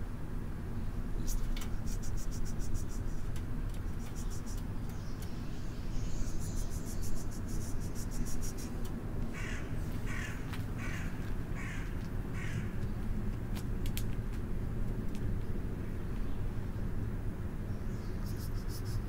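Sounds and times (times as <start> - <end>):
crow cawing: 9.3 - 12.8.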